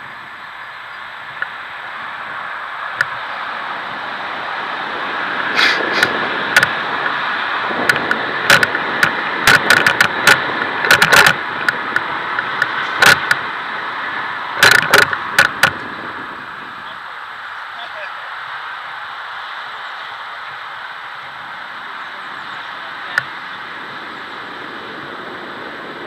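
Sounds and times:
bicycle tyre noise: 0.0 - 26.0
wind rushing: 1.1 - 26.0
bicycle knocks and rattles: 5.7 - 7.2, 7.8 - 13.5, 14.6 - 16.2.

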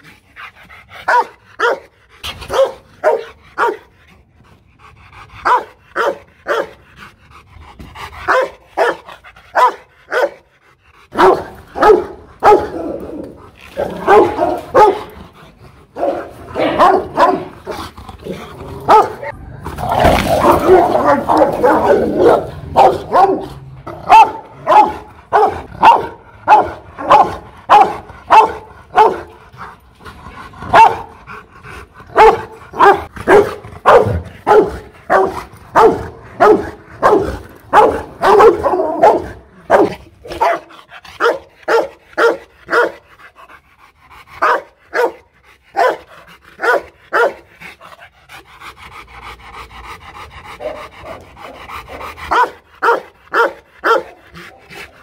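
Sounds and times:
dog panting heavily: 0.0 - 12.5, 24.1 - 55.0
dog barking aggressively: 1.0 - 3.9, 5.4 - 6.8, 8.2 - 10.5, 11.1 - 15.2, 15.9 - 29.4, 30.6 - 31.2, 32.1 - 43.1, 44.4 - 47.6, 50.6 - 54.8.

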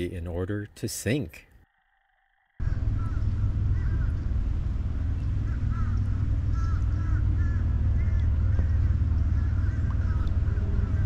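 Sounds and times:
birds calling: 2.6 - 11.0.

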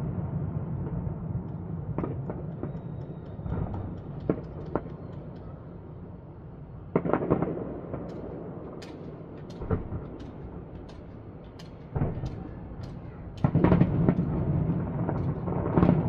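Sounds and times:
low rumble of firework bursts: 0.0 - 16.0
sharp firework bangs: 7.0 - 16.0.

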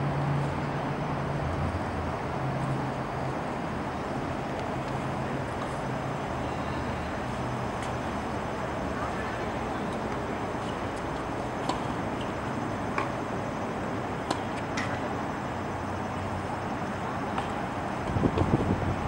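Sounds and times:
outdoor background rumble: 0.0 - 19.0.

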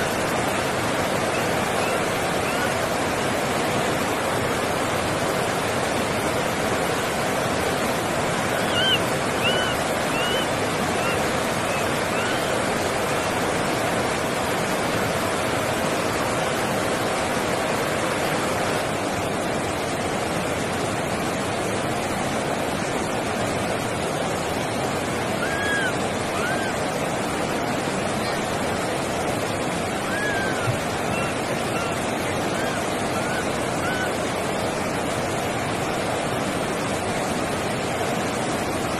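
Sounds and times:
steady rushing noise: 0.0 - 38.9
faint high arched cries: 25.4 - 26.8, 30.0 - 34.2.

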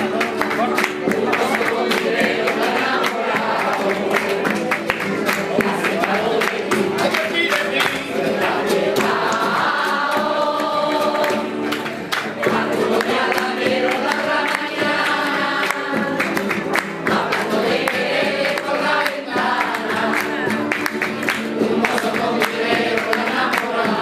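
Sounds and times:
acoustic guitar: 0.0 - 24.0
rhythmic hand-clapping: 0.0 - 24.0
women's choir singing: 1.0 - 24.0.

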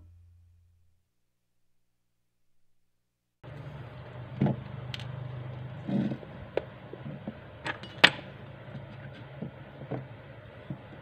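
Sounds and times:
steady low hum: 3.4 - 11.0.

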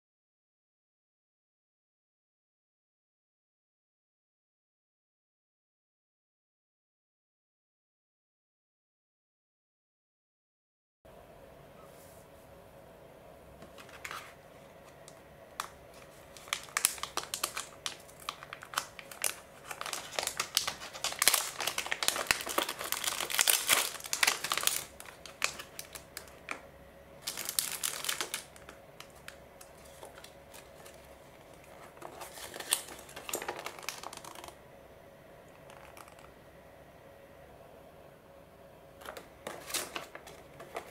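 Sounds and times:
paper sheet rustling: 13.6 - 26.5, 27.2 - 34.6, 39.0 - 40.9
plastic packaging crinkling: 13.6 - 34.6, 35.5 - 36.4, 39.0 - 40.9.

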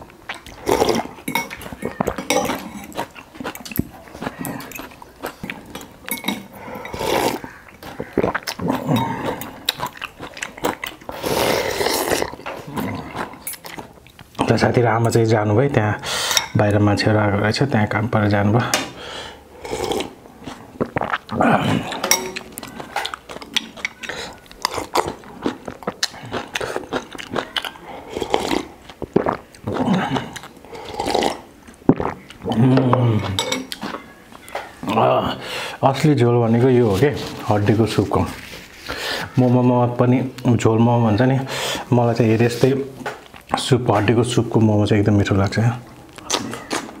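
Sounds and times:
chewing: 0.0 - 14.5, 19.6 - 34.8, 42.6 - 43.7, 45.4 - 47.0
slurping noodles and soup: 0.3 - 13.9, 19.0 - 34.0
slurping sips: 6.5 - 7.5, 11.0 - 13.4, 27.8 - 32.2.

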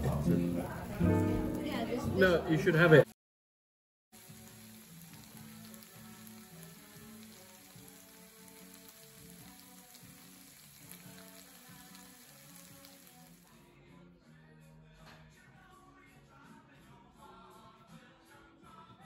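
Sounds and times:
soft background music: 0.0 - 3.0, 4.2 - 19.0
food sizzling in a frying pan: 0.0 - 3.1, 4.2 - 13.6.

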